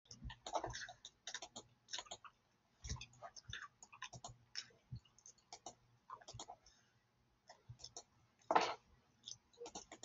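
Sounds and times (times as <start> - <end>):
computer mouse clicking: 0.1 - 6.6, 7.5 - 8.1, 9.2 - 10.0.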